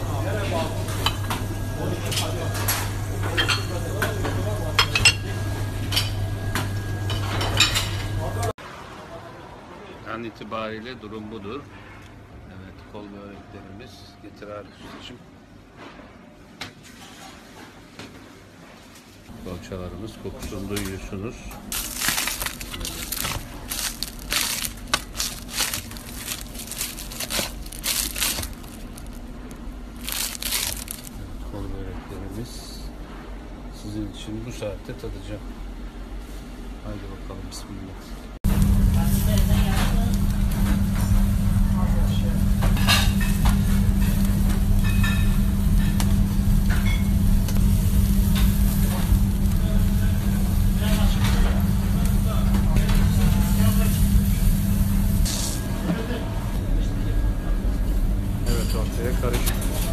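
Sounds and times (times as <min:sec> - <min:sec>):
low machine hum: 0:00.0 - 0:08.6, 0:19.3 - 0:59.9.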